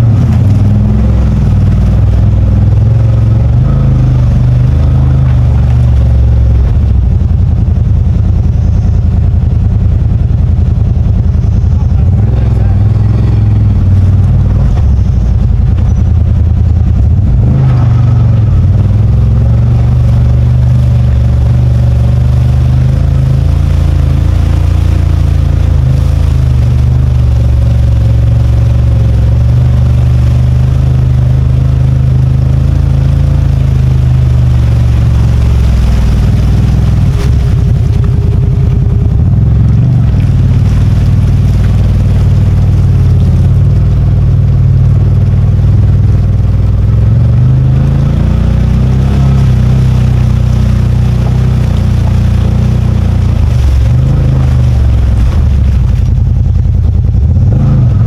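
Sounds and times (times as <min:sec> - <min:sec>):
engine running at low speed: 0:00.0 - 0:58.0.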